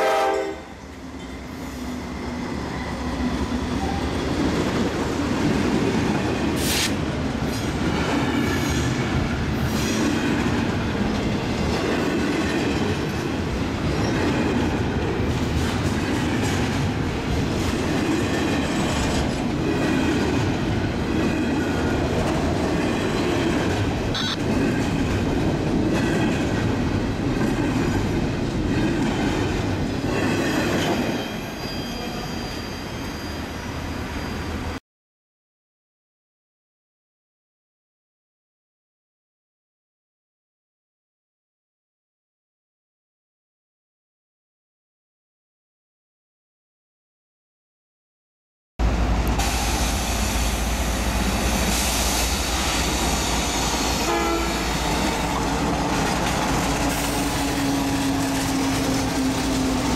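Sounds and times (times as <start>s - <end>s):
freight train rumbling past: 0.0s - 34.8s, 48.8s - 59.9s
high wheel squeals: 31.0s - 34.8s.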